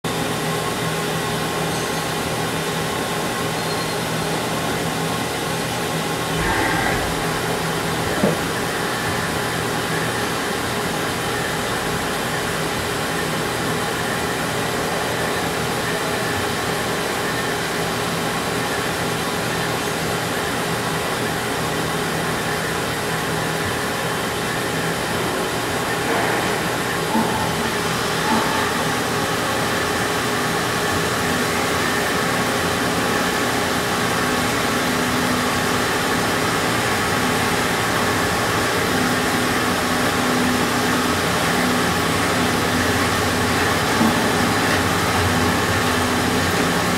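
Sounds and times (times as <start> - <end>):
milling machine whirring: 2.8 - 17.6, 22.4 - 46.9
constant hum: 4.2 - 17.3.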